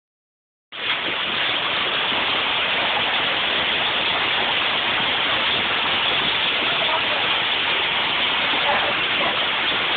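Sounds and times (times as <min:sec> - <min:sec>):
heavy rain and hail: 0:00.7 - 0:09.9.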